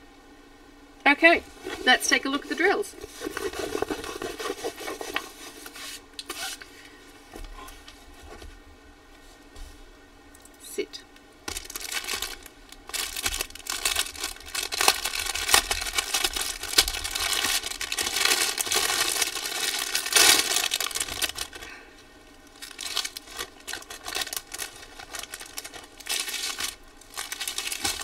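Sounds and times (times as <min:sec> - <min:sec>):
plastic wrap crinkling: 0:01.4 - 0:06.6, 0:11.5 - 0:21.8, 0:22.4 - 0:28.0.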